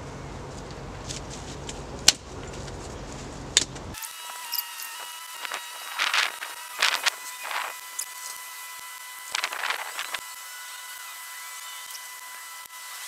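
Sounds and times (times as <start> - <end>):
twigs rustling: 0.4 - 10.4.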